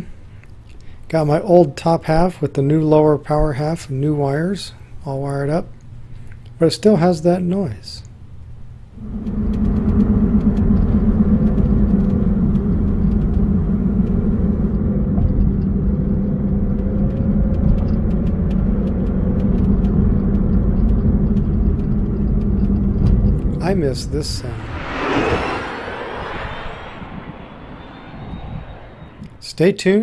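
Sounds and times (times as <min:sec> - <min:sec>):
low pulsing rumble: 0:09.0 - 0:29.5.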